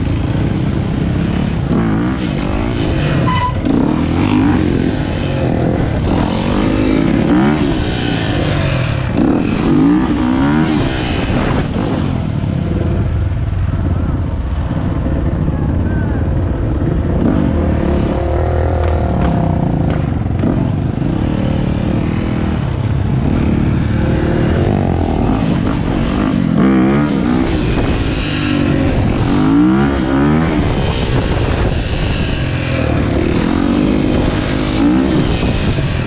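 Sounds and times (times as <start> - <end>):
dirt bike engine revving: 0.0 - 12.9, 16.8 - 36.0
wind on microphone: 24.1 - 36.0.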